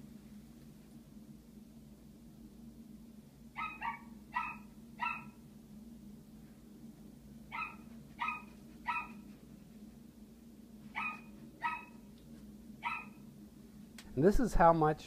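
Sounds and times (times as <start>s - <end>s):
steady low hum: 0.0s - 15.0s
small dog yapping: 3.6s - 5.4s, 7.5s - 9.4s, 10.9s - 12.1s, 12.8s - 13.2s.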